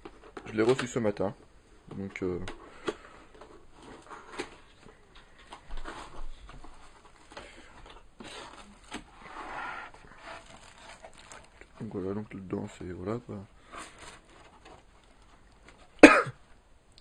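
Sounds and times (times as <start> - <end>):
cardboard scraping and rustling: 2.2 - 16.0.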